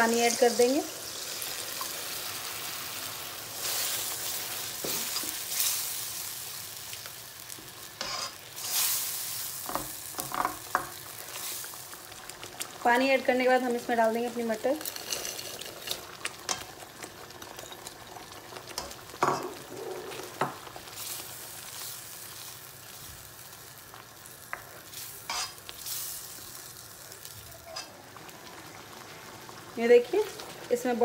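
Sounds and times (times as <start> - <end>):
gravy sizzling: 0.0 - 31.0
ladle scraping a pan: 8.0 - 8.4.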